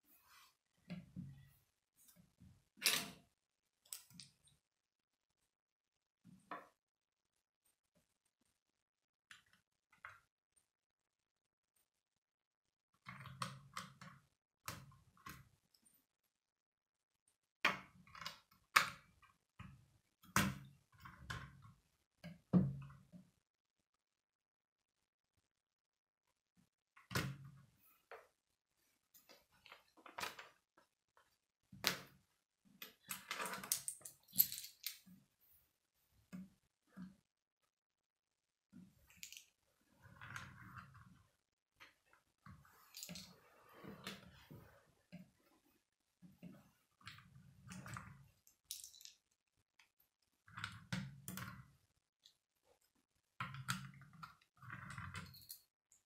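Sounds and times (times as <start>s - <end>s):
plastic pieces clicking and knocking: 32.8s - 35.1s, 39.2s - 39.6s, 47.7s - 49.3s.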